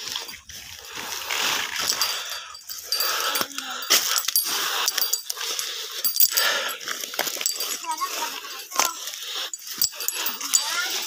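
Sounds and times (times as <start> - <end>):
person panting: 0.8 - 11.0.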